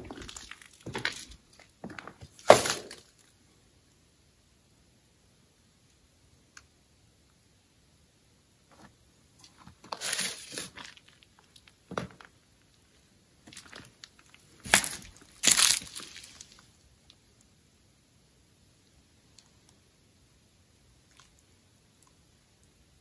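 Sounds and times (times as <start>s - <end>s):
crunching and crackling: 0.0s - 3.3s, 8.7s - 12.8s, 13.4s - 16.8s.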